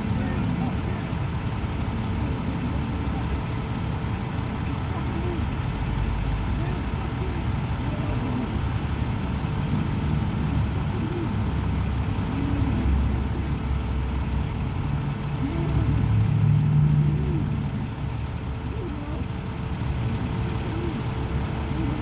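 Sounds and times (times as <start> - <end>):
vehicle engine and road noise: 0.0 - 22.0.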